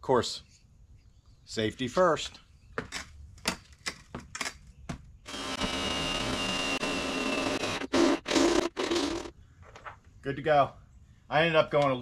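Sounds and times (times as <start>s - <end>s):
power drill cutting sheet metal: 5.3s - 9.3s.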